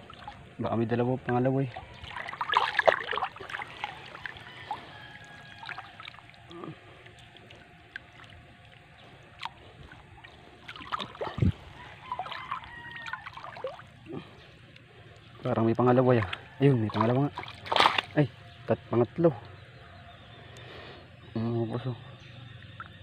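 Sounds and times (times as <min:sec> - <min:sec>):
water splashing and dripping: 0:00.0 - 0:00.6, 0:01.3 - 0:18.3.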